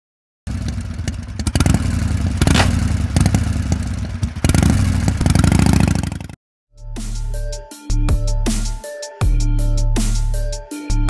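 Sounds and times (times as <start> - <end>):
motorcycle engine running loud: 0.5 - 6.4.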